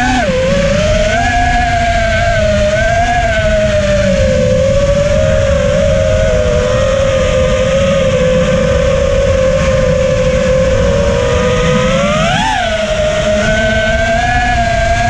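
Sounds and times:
quadcopter motors whining: 0.0 - 15.0
wind rushing over microphone: 0.0 - 15.0.

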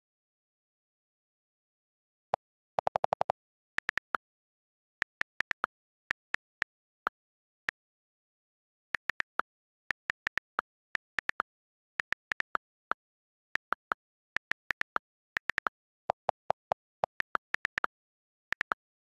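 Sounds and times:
lower-pitched keyboard clicks: 2.3 - 4.2.

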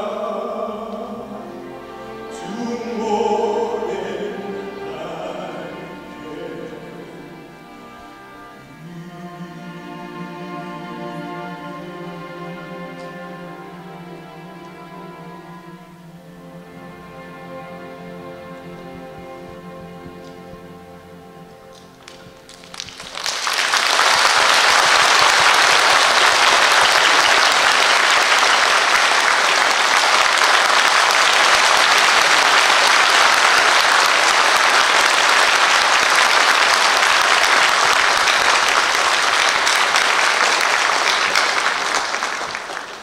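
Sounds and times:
music: 0.0 - 43.0
audience applauding: 21.7 - 43.0.

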